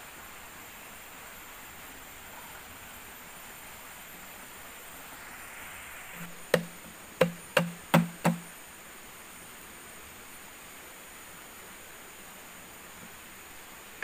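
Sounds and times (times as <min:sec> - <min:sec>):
sharp knocks with low ring: 0:06.5 - 0:08.5.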